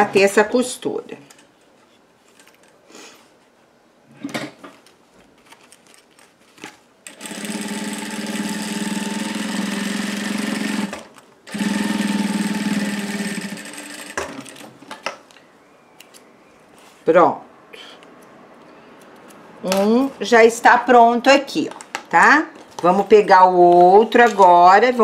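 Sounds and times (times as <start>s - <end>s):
sewing machine running: 7.1s - 14.6s.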